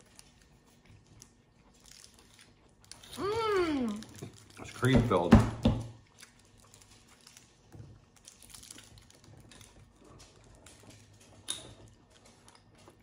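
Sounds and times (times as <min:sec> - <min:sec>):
biting candy: 0:00.0 - 0:04.9
candy wrapper clicks and rustles: 0:00.0 - 0:05.3, 0:06.0 - 0:13.0.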